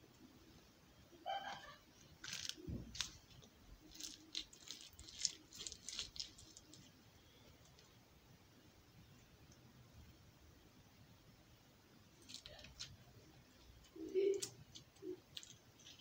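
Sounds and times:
slime clicking and squelching: 2.2s - 6.9s.

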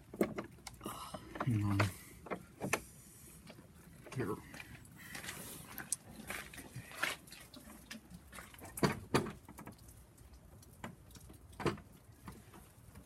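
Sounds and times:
rustling of handling things: 0.1s - 9.7s.

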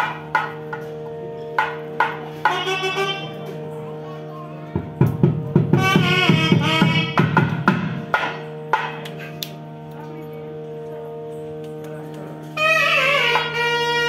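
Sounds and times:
reed pipe melody: 0.0s - 14.0s
steady drone: 0.0s - 14.0s
single drum strikes: 4.7s - 9.0s
fast drum strokes: 4.8s - 9.0s.

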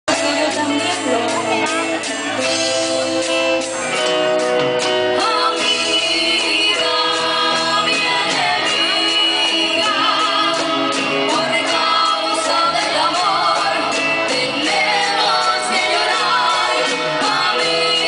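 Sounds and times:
live band playing: 0.1s - 18.0s
women singing: 5.2s - 18.0s.

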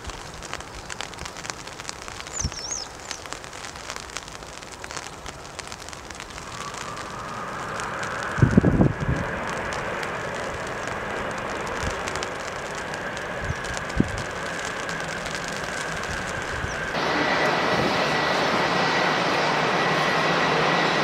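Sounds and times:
jet engines whining: 6.4s - 21.0s
wind thumps on microphone: 7.8s - 10.6s, 13.4s - 14.4s.

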